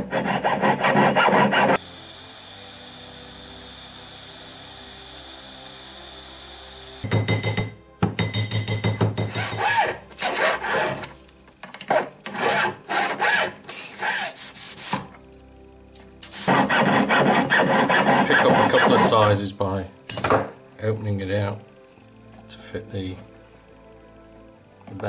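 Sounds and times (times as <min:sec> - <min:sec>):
file rasping on metal ring: 0:00.0 - 0:01.8, 0:09.2 - 0:11.2, 0:11.8 - 0:15.0, 0:16.4 - 0:19.3.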